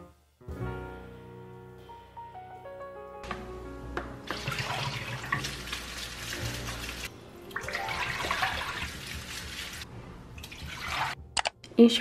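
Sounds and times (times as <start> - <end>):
tap running water: 3.3 - 11.2
water splashing over grapes: 4.3 - 11.2.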